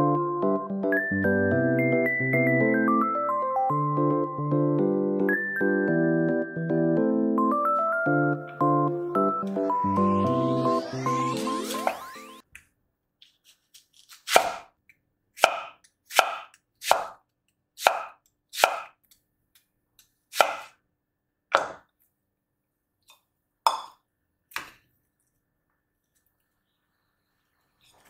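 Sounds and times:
knife chopping on cutting board: 14.1 - 14.7, 15.4 - 17.2, 17.8 - 19.0, 20.3 - 20.8, 21.5 - 21.8.

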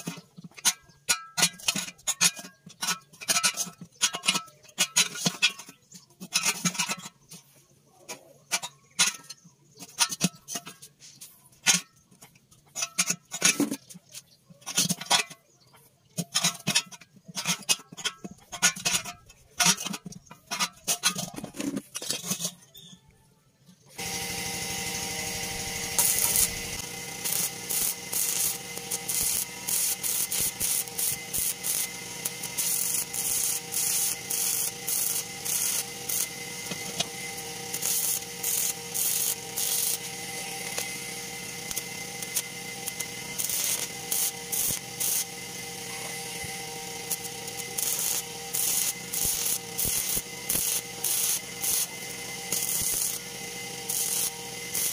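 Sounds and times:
welding spits and pops: 8.1 - 22.9, 23.8 - 54.9
arc welder crackling sizzle: 23.9 - 54.9.

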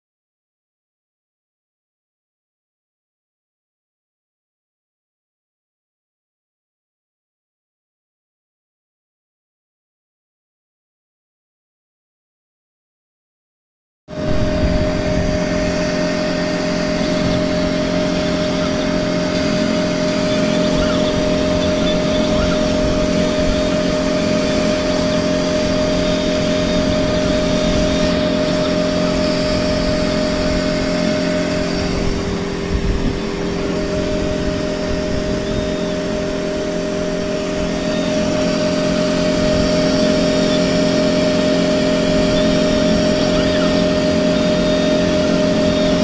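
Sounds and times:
laser cutting machine hum: 14.1 - 46.0.

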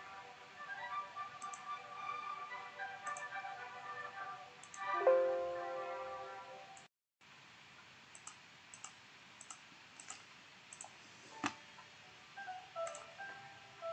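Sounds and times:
soft clicks: 1.4 - 1.7, 3.0 - 3.3, 4.6 - 4.9, 7.8 - 11.9, 12.8 - 13.4
sustained musical chord: 4.9 - 6.7.

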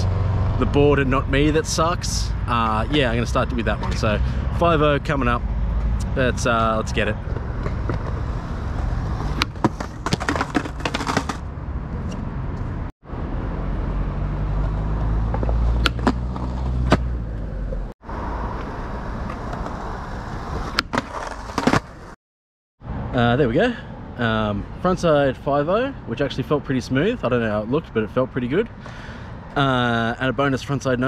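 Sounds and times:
skateboard wheels rolling on concrete: 6.2 - 12.7, 14.6 - 22.2
skateboard trucks grinding ledge: 7.2 - 11.5, 18.8 - 22.2
skateboard popping and landing clacks: 9.1 - 11.4, 15.3 - 17.1, 20.6 - 22.1.

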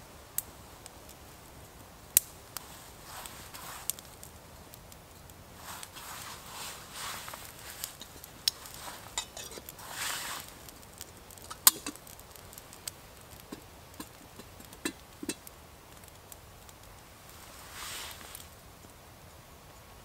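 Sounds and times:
rustle: 0.0 - 20.0
metal pot clinking on stove: 9.1 - 9.6, 11.5 - 12.0.

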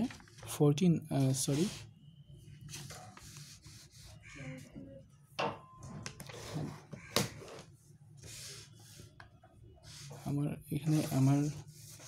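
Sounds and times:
paper sheets rustling: 10.9 - 12.0.

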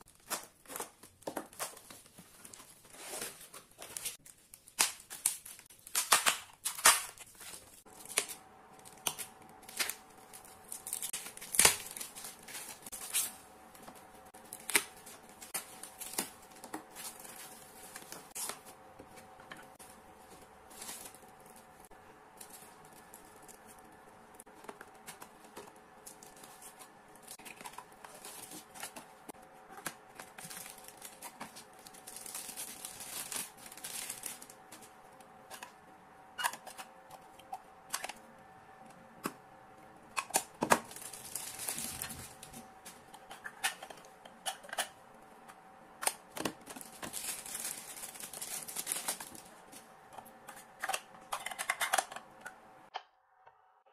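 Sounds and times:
faint steady hum: 0.0 - 53.9
plastic bag crinkling and tearing: 0.1 - 18.8, 29.8 - 34.9, 40.6 - 42.7, 46.3 - 49.8.

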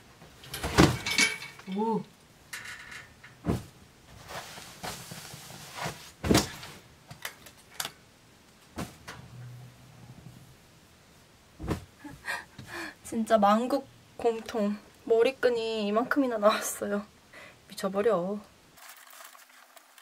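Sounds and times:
thumps and knocks on bed frame: 3.4 - 3.8, 6.2 - 6.7, 11.6 - 12.2
fabric rustling: 3.4 - 6.9.

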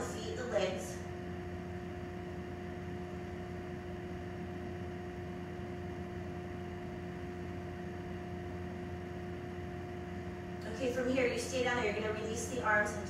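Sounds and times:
background hum and hiss: 0.0 - 13.0.

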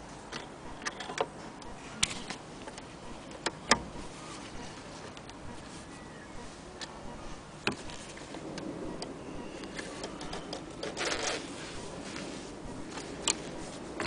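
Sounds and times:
cloth rustling: 3.9 - 8.8, 9.6 - 14.0.

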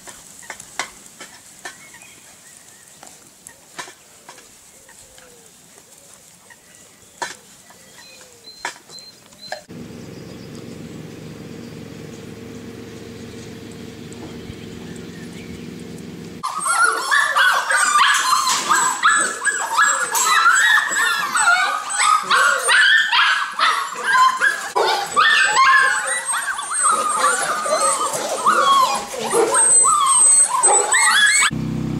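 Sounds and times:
steady low hum: 9.7 - 16.4
puppies whimpering and yipping: 11.7 - 31.5.

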